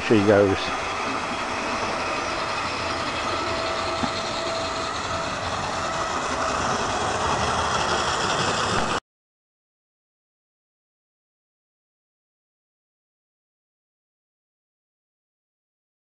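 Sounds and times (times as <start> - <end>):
model train running on track: 0.0 - 9.0.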